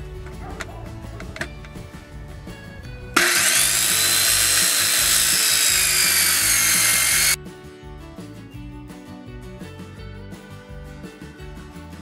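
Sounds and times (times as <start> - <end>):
circular saw cutting timber: 3.2 - 7.4.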